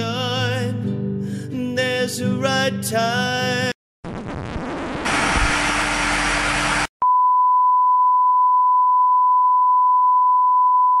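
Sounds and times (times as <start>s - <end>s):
loud hiss-like noise: 5.1s - 6.9s.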